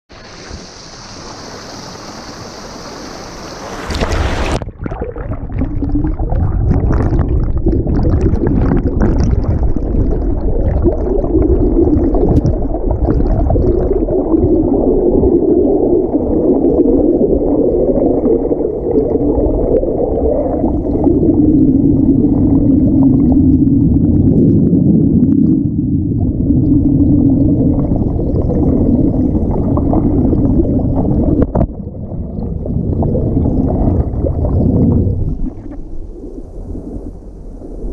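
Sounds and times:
stream splashing over log: 0:00.1 - 0:07.3
underwater rush and bubbles: 0:00.1 - 0:37.9.

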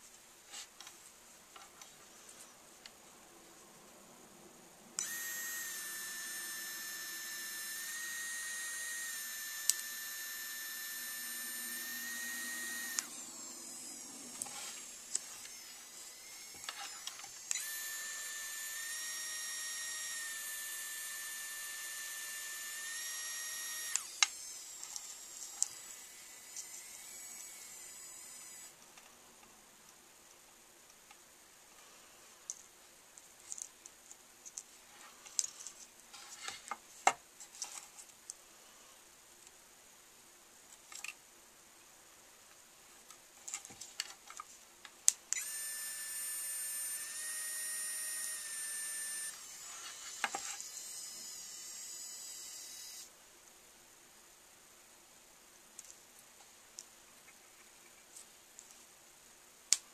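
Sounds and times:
small motor whining: 0:05.0 - 0:28.8, 0:45.3 - 0:53.1.

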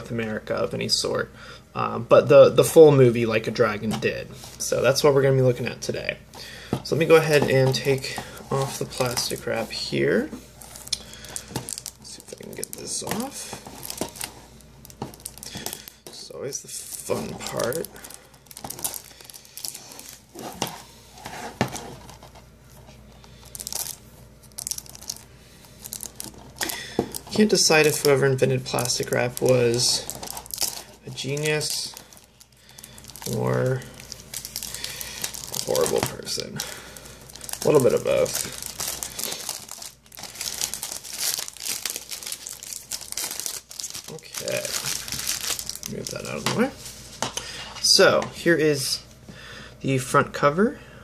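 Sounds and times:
plastic wrap crinkling and tearing: 0:06.8 - 0:20.8, 0:23.1 - 0:47.0.

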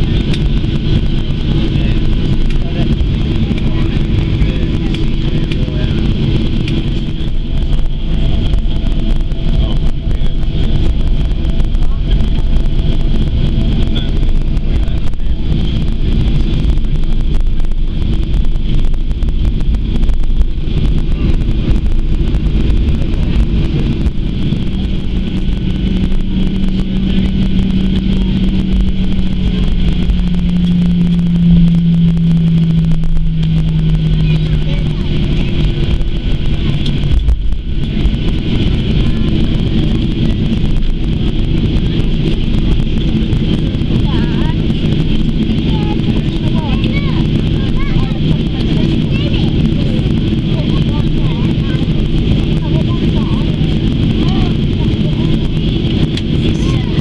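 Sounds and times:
jet engine cabin rumble and hiss: 0:00.0 - 0:57.0
strong low hum: 0:00.0 - 0:57.0.

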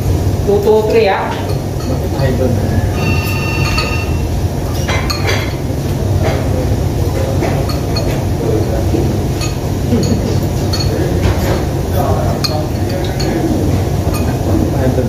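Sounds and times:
low room hum: 0:00.0 - 0:15.0
spoons and bowls clinking: 0:03.0 - 0:05.5, 0:09.4 - 0:11.6.

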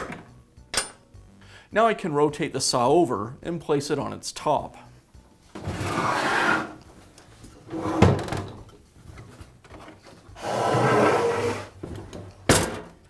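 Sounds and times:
saw scraping across bench: 0:05.7 - 0:06.8, 0:10.3 - 0:11.8.

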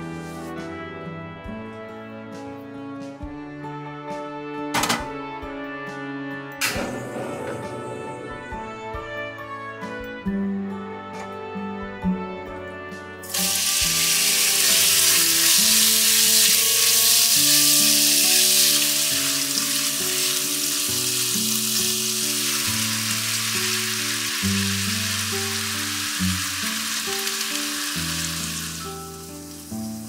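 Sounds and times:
background music: 0:00.0 - 0:30.0
meat sizzling in hot oil: 0:13.2 - 0:30.0.

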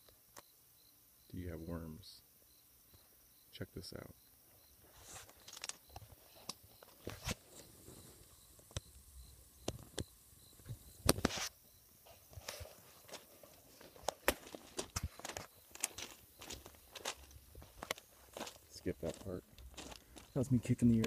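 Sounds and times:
footsteps and scuffs: 0:04.8 - 0:07.7, 0:10.7 - 0:21.0.

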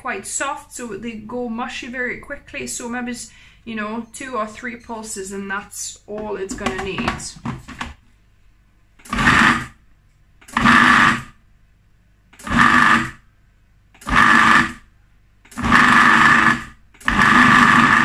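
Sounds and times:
food processor pulsing: 0:09.0 - 0:09.8, 0:10.4 - 0:11.4, 0:12.4 - 0:13.2, 0:14.0 - 0:14.9, 0:15.5 - 0:18.0.

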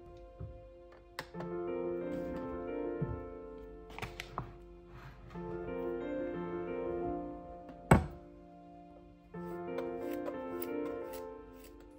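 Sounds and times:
soft piano music: 0:00.0 - 0:11.9
knocks on wooden cabinet door: 0:07.9 - 0:08.2.

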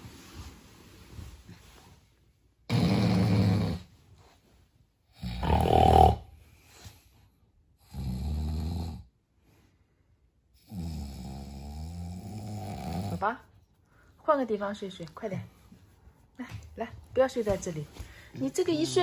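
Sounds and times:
man snoring: 0:02.7 - 0:03.9, 0:05.2 - 0:06.3, 0:07.8 - 0:09.1, 0:10.6 - 0:13.2.

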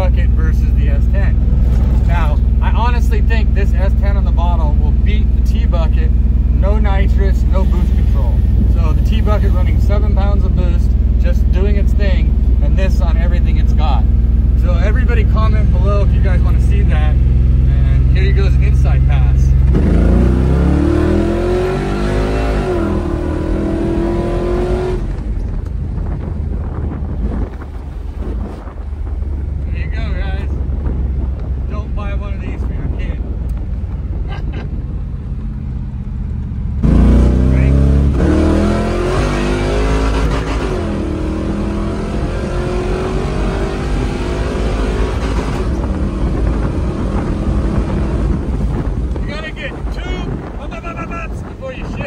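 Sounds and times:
truck engine accelerating hard: 0:00.0 - 0:31.9, 0:33.5 - 0:49.5
truck engine at high revs: 0:17.0 - 0:27.6, 0:36.8 - 0:49.2.

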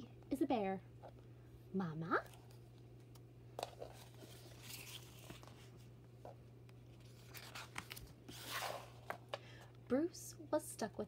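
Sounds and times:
steady low hum: 0:00.0 - 0:11.0
paper pages rustling: 0:02.2 - 0:05.9, 0:06.9 - 0:09.2.

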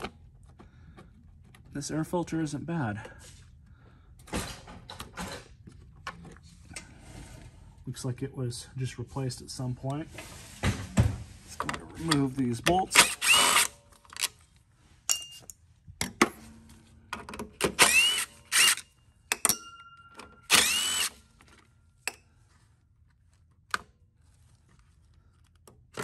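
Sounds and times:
cordless drill spinning up: 0:13.0 - 0:13.8, 0:17.7 - 0:18.9, 0:20.5 - 0:21.2.

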